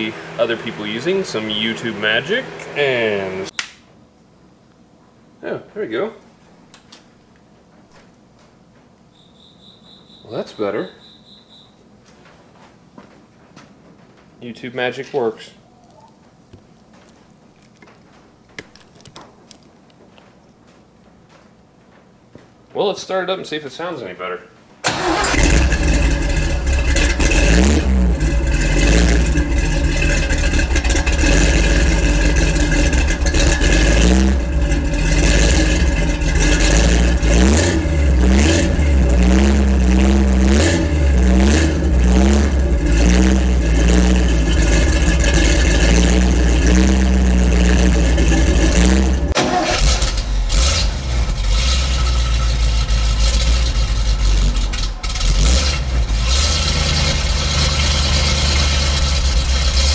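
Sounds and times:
truck engine idling and revving: 0.0 - 3.5, 24.9 - 59.9.

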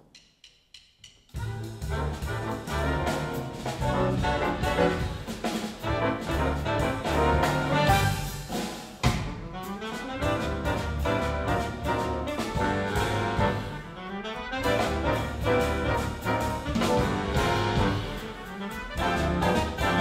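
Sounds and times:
jazz big band playing: 1.3 - 20.0.

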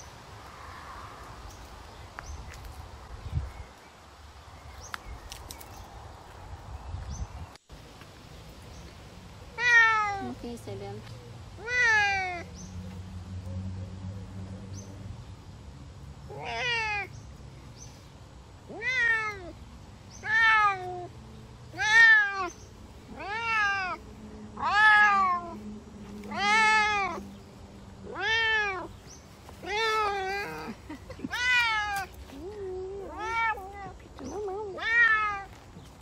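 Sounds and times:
cat meowing: 18.7 - 19.5, 20.2 - 21.1, 23.1 - 24.0, 24.6 - 25.6, 26.3 - 27.2, 28.1 - 28.9, 31.3 - 35.5.

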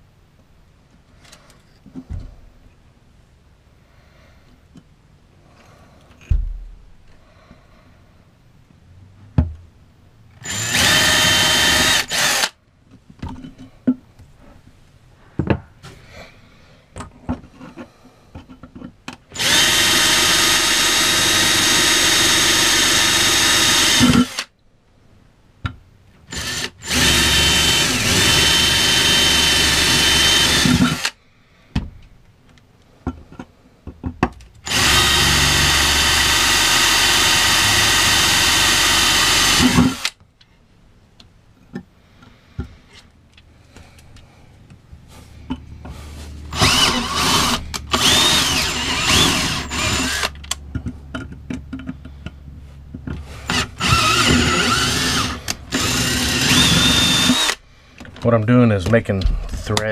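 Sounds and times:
cordless drill whining: 10.4 - 12.6, 19.4 - 24.5, 26.3 - 31.2, 34.6 - 40.2, 46.5 - 50.5, 53.3 - 57.6.

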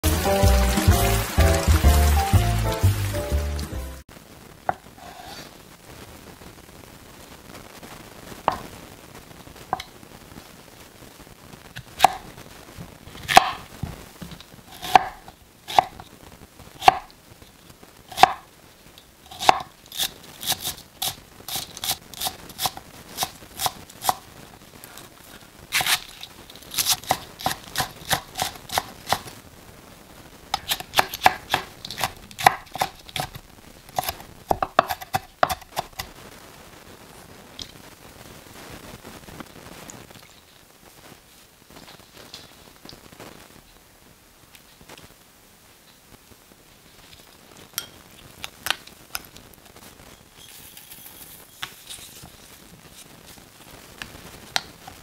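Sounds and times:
knife chopping on wooden board: 13.3 - 13.6, 14.8 - 15.9, 18.2 - 18.4, 30.6 - 33.4, 34.0 - 36.1.

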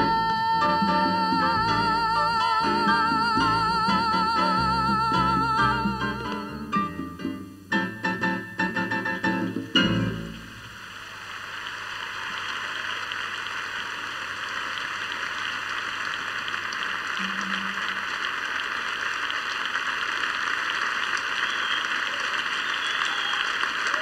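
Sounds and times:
large audience applauding: 10.6 - 24.0.

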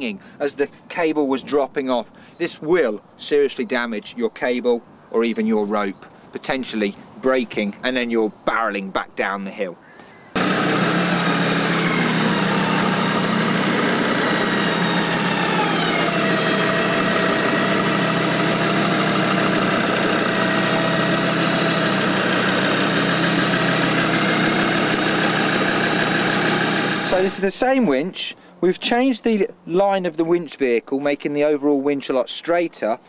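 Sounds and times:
electric winch motor whining: 10.4 - 27.4
vehicle engine running: 10.4 - 27.4.

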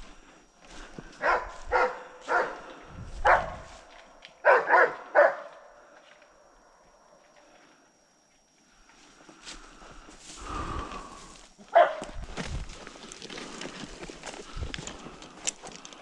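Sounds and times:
dog barking: 1.2 - 2.6, 3.2 - 3.7, 4.4 - 5.6, 11.7 - 12.2.

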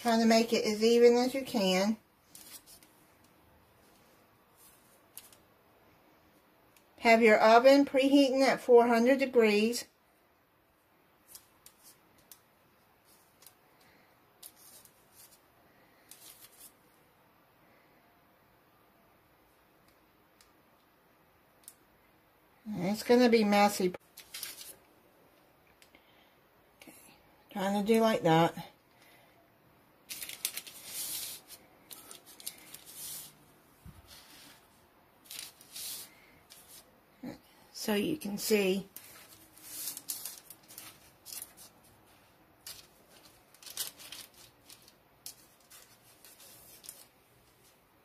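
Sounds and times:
parchment paper crinkling: 2.2 - 5.4, 13.0 - 16.8, 24.0 - 24.8, 30.1 - 33.4, 35.2 - 36.9, 38.8 - 47.8.

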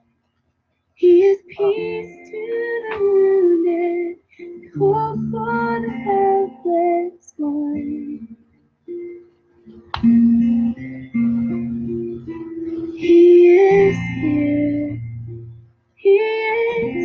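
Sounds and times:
woman singing: 1.0 - 8.4, 13.0 - 15.2, 16.0 - 17.0.

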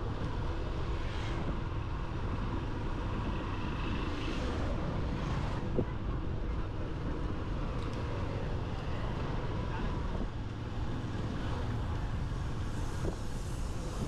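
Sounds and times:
motorcycle road noise: 0.0 - 14.0
wind on microphone: 12.0 - 14.0.

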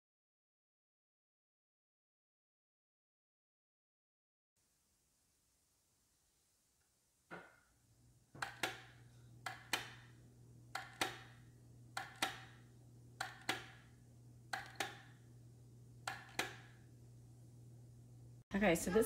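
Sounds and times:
double clicks on plastic kettle: 8.4 - 8.9
low hum: 8.9 - 19.0.

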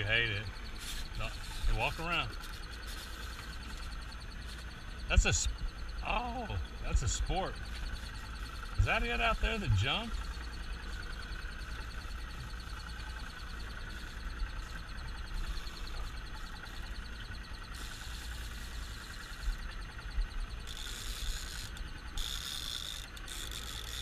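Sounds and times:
wind and boat rumble: 0.0 - 18.3
faint fast ticking: 0.0 - 24.0.

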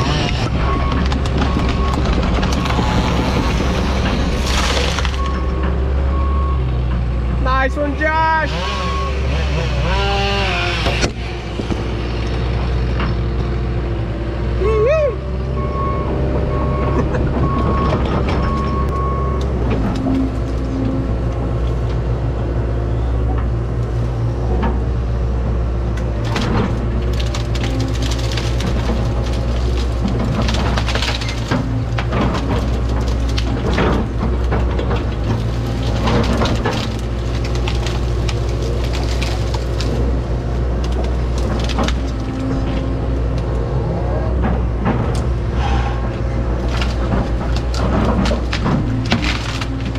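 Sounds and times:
branches cracking: 0.0 - 5.6, 26.2 - 43.6, 46.5 - 49.9
diesel engine running: 0.0 - 49.9
reversing alarm beeping: 5.2 - 6.7, 8.6 - 9.3, 15.5 - 19.4.

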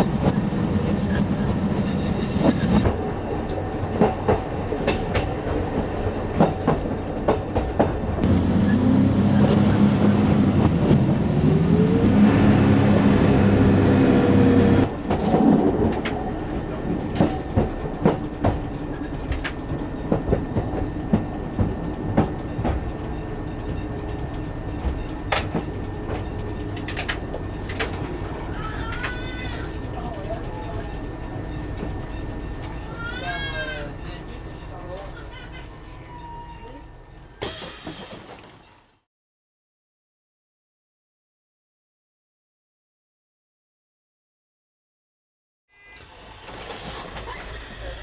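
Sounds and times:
railcar engine note rising: 0.0 - 37.4
wheels clicking over rail joints: 14.8 - 35.9.

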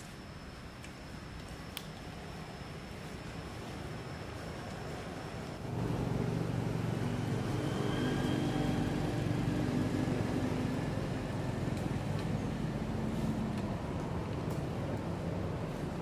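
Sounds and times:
vehicle engine running: 5.6 - 16.0.

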